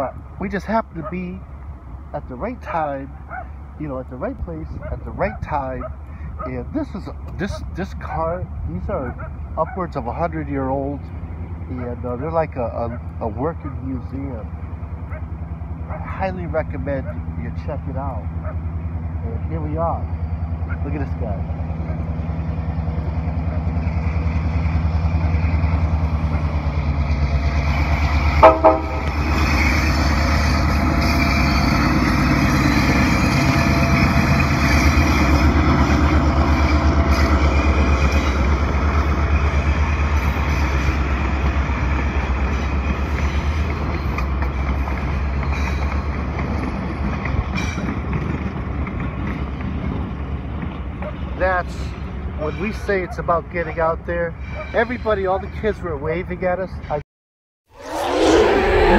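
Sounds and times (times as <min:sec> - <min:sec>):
diesel locomotive rumbling past: 0:00.0 - 0:56.0, 0:57.8 - 0:58.9
coaches rattling on rails: 0:00.0 - 0:57.0
locomotive horn blast: 0:28.4 - 0:29.3.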